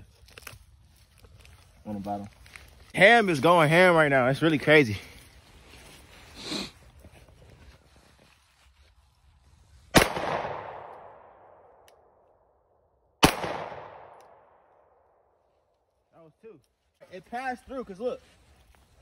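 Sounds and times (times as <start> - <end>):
pistol shots with echo: 10.0 - 11.8, 13.2 - 14.6.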